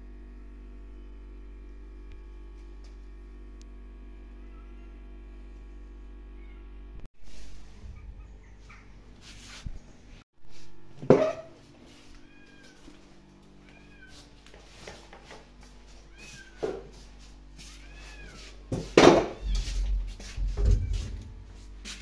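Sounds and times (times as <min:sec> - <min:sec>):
low bumping and rumbling: 0:07.4 - 0:10.2, 0:19.0 - 0:21.8
kitten meowing: 0:16.1 - 0:16.6, 0:19.2 - 0:20.0.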